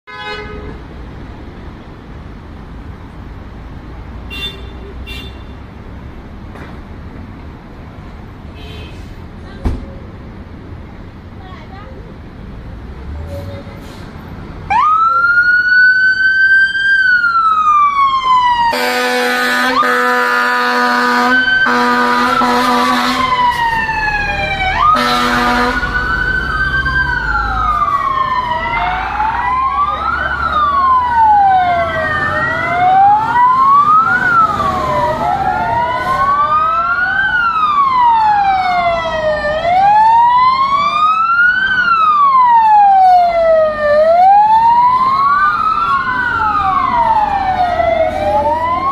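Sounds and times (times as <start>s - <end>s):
truck horn blast: 0.1s - 0.8s, 4.3s - 5.6s, 18.7s - 23.3s, 24.8s - 26.0s
fire truck sirens wailing: 14.6s - 48.9s.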